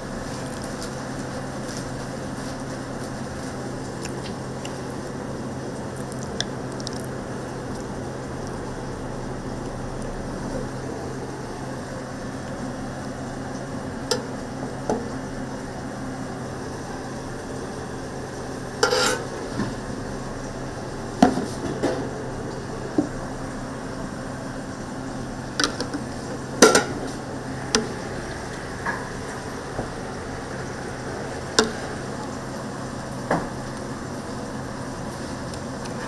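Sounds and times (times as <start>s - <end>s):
griddle sizzle and hum: 0.0s - 36.0s
metal utensils clicking on griddle: 18.8s - 19.3s.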